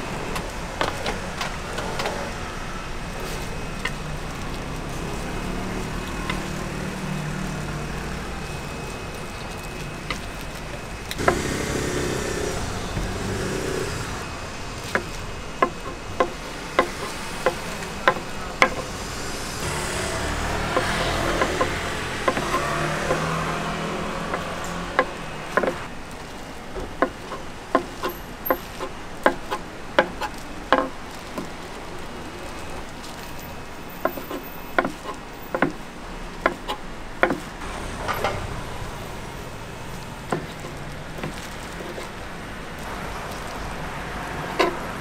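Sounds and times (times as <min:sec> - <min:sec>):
traffic rumble: 0:00.0 - 0:45.0.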